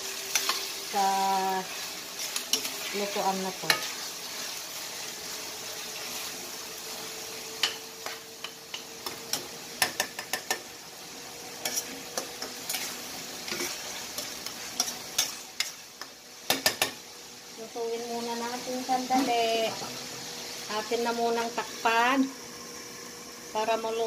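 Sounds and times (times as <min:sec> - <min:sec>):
meat sizzling in a frying pan: 0:00.0 - 0:24.0
spatula scraping a pan: 0:00.2 - 0:01.0, 0:01.6 - 0:06.4, 0:11.6 - 0:17.0.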